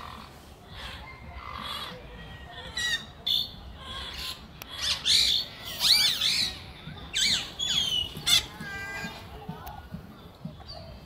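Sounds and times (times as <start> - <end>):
infant monkey squealing: 3.9 - 8.5
monkey chirps: 4.7 - 8.5.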